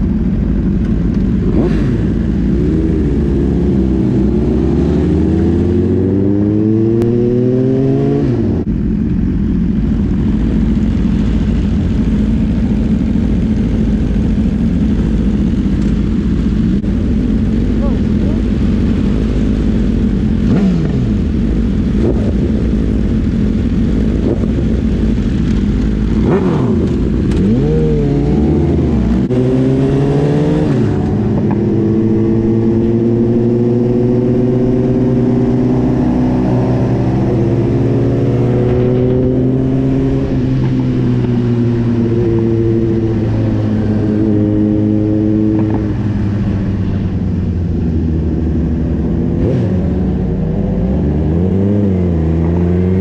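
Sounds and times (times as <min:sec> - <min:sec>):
motorcycle engine accelerating: 0:00.0 - 0:53.0
wind noise on microphone: 0:20.0 - 0:53.0.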